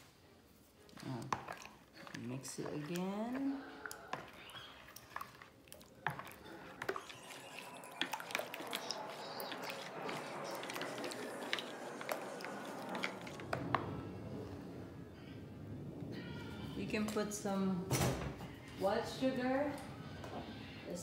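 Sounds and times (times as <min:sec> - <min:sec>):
spoon stirring batter in bowl: 0:00.6 - 0:14.0.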